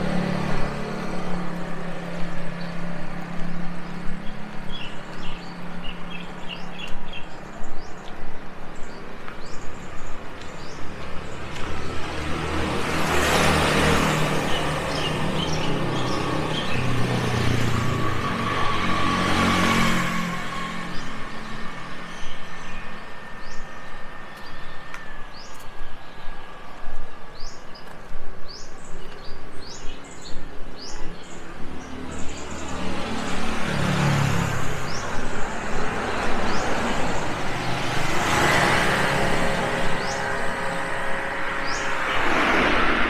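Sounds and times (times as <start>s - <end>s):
motor vehicles passing: 0.0s - 26.8s, 27.4s - 43.0s
small birds chirping: 2.0s - 12.0s, 21.4s - 42.3s.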